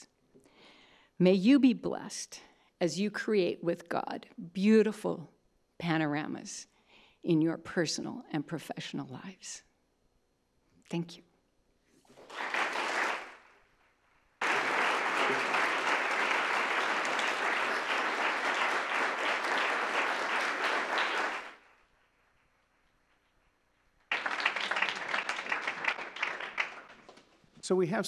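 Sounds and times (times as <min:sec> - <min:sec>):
audience applauding: 0:12.1 - 0:13.5, 0:14.4 - 0:21.8, 0:24.1 - 0:27.2.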